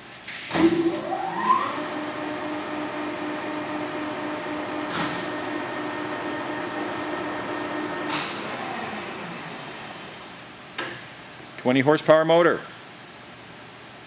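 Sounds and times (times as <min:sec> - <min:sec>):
lathe headstock whine: 0:01.3 - 0:10.1.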